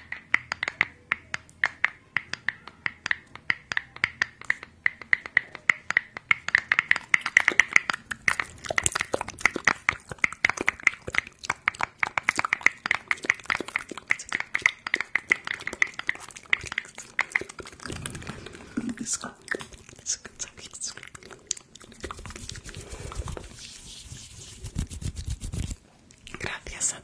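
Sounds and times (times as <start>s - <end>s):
soft rustle: 22.2s - 26.4s.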